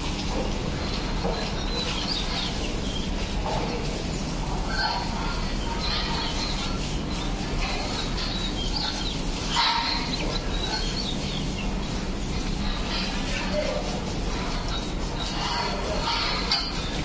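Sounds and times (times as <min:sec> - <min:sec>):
hose spraying water: 0:00.0 - 0:17.0
small birds chirping: 0:00.9 - 0:13.9.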